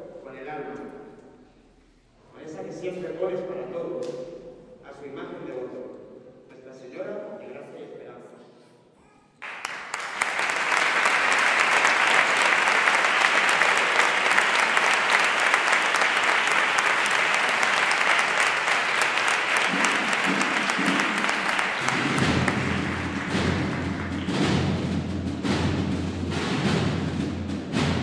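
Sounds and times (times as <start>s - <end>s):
audience applauding: 9.4s - 25.0s
low drum roll: 10.4s - 28.0s.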